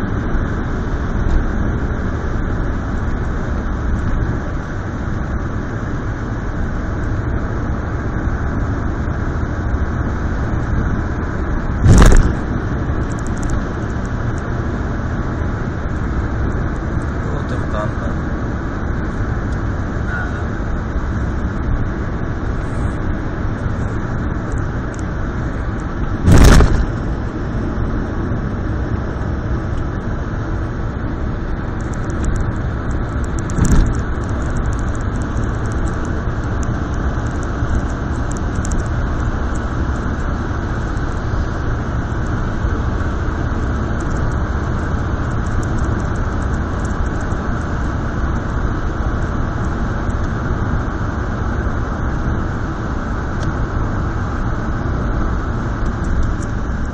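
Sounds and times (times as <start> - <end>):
car road and engine noise: 0.0 - 56.9
loud thump: 11.8 - 12.4, 26.2 - 27.0, 33.6 - 34.0.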